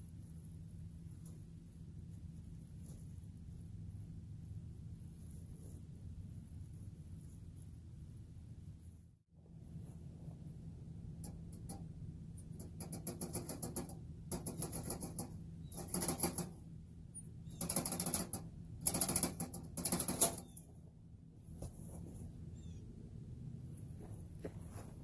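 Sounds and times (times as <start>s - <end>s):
claws scrabbling on wire mesh: 11.1s - 16.6s, 17.5s - 20.8s.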